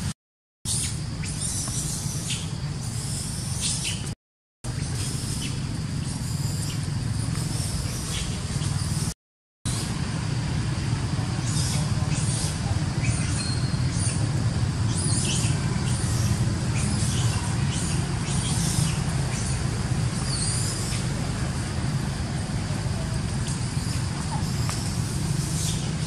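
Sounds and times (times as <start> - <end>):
steady low rumble: 9.8 - 26.0
monkeys squealing and squeaking: 11.4 - 21.2, 22.9 - 26.0.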